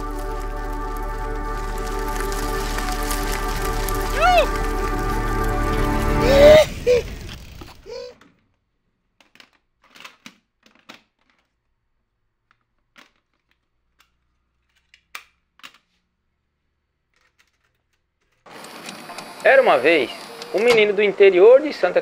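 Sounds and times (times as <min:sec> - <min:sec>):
music: 0:00.0 - 0:07.0
plastic gear clicking and clattering: 0:08.2 - 0:16.1, 0:17.0 - 0:19.5.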